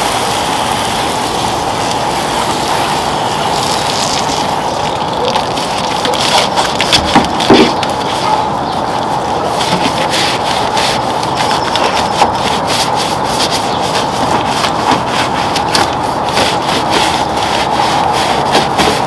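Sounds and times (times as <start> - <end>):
brush scrubbing: 5.2 - 19.0.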